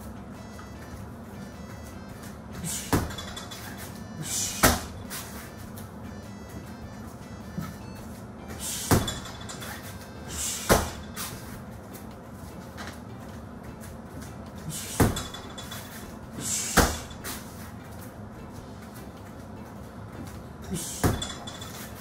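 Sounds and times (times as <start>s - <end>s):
gloved punches thudding on heavy bag: 2.6s - 3.4s, 4.3s - 5.3s, 8.8s - 9.3s, 10.4s - 11.4s, 14.9s - 15.4s, 16.6s - 17.2s, 21.0s - 21.3s
short hissing exhale: 8.6s - 8.9s, 10.3s - 10.7s, 16.4s - 16.8s.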